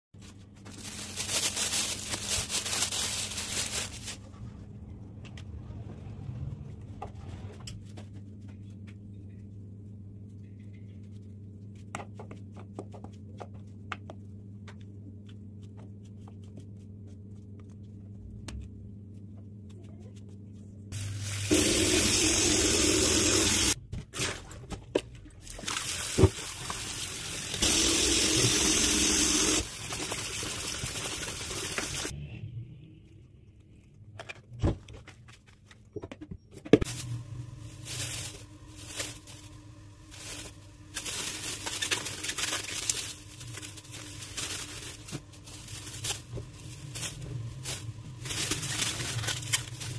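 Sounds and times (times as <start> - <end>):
kitchen tap running: 21.0 - 23.8, 25.5 - 32.1.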